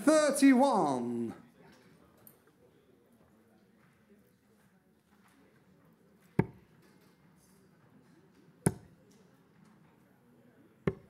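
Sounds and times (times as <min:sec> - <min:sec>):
darts hitting dartboard: 0:06.4 - 0:06.7, 0:08.7 - 0:09.0.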